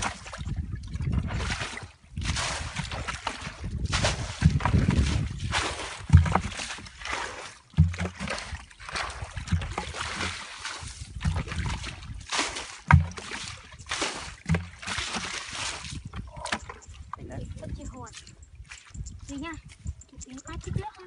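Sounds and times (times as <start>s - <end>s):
hands splashing in mud: 1.5s - 16.0s.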